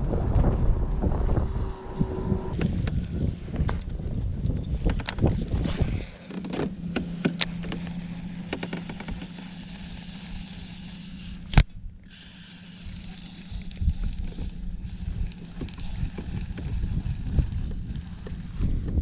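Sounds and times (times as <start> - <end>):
low rumble: 0.0 - 12.0
electric motor humming: 0.3 - 19.0.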